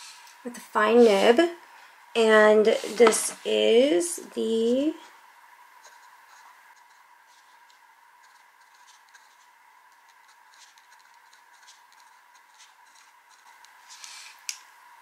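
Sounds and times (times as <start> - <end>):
faint steady hum: 0.0 - 15.0
fountain pen scratching on paper: 5.8 - 14.3.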